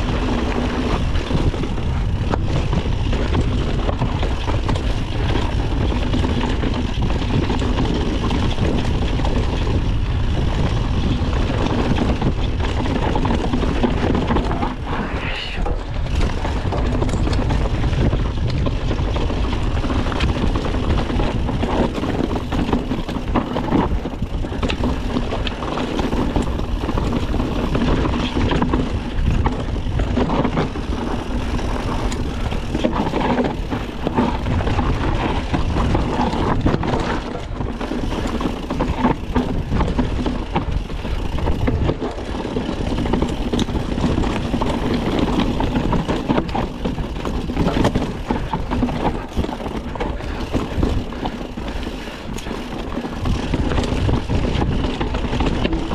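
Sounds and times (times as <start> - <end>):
bike knocks and rattles: 0.0 - 14.9, 15.9 - 55.9
bike tyres crunching on dirt: 0.0 - 55.9
heavy low rumble: 14.0 - 19.7.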